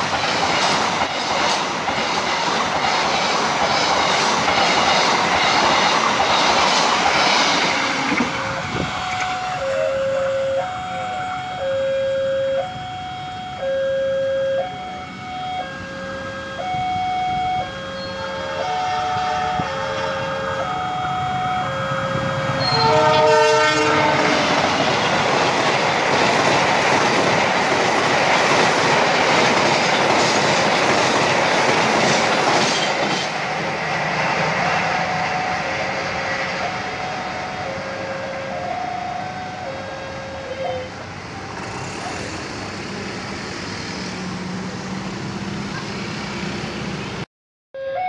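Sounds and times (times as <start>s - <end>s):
train wheels clattering: 0.0s - 9.6s, 23.7s - 34.9s
level crossing alarm two tones: 8.2s - 23.4s, 34.8s - 40.9s, 47.8s - 48.0s
train horn blast: 17.6s - 24.8s.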